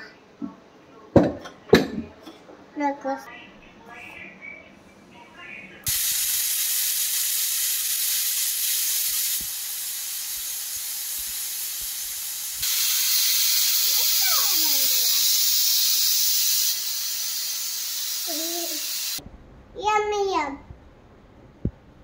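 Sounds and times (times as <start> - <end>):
pressure cooker steam hissing: 5.9 - 19.2.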